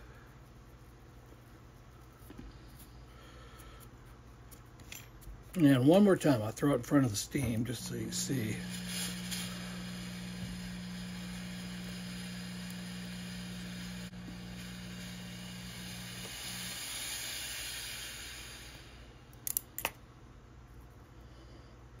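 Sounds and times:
steam hissing: 0:05.6 - 0:19.3.

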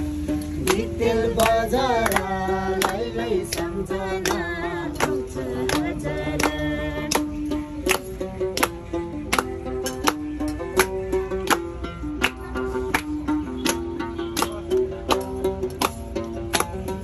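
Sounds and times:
hands clapping a steady beat: 0:00.1 - 0:17.0
group singing: 0:00.5 - 0:07.8.

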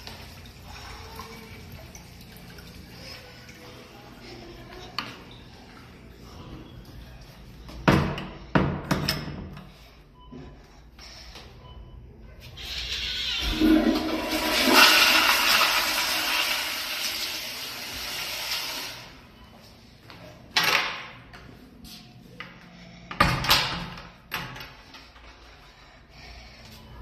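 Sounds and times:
toilet flushing: 0:12.6 - 0:19.3.

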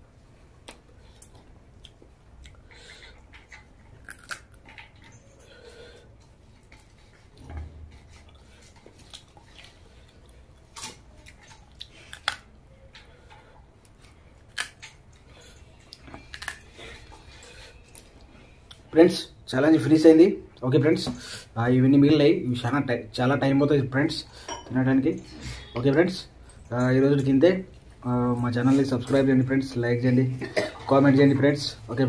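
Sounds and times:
person chewing food: 0:00.6 - 0:18.9
crab shell cracking: 0:04.0 - 0:04.6.

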